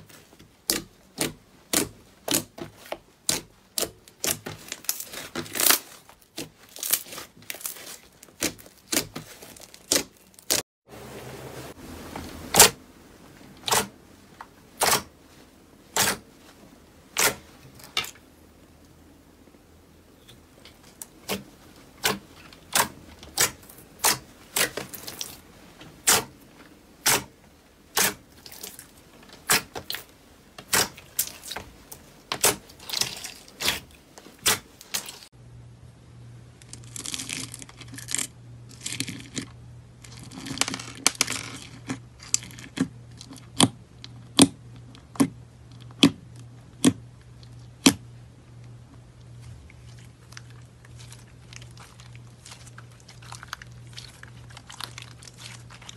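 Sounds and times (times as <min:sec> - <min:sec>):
crunchy slime crackling: 0:00.0 - 0:10.6, 0:20.7 - 0:35.3, 0:49.2 - 0:55.9.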